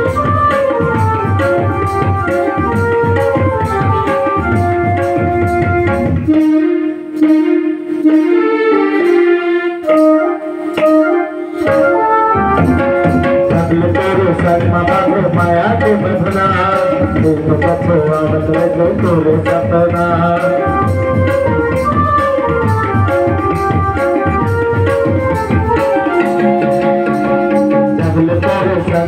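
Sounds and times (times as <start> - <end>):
hand drums: 0.0 - 8.2, 9.9 - 29.0
sustained melody instrument: 0.0 - 29.0.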